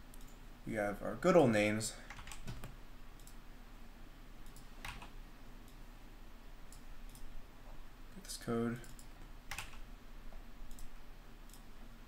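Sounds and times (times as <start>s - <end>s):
computer mouse clicks: 0.1s - 0.4s, 2.1s - 3.4s, 4.4s - 5.8s, 6.7s - 7.3s, 8.8s - 9.8s, 10.6s - 11.7s.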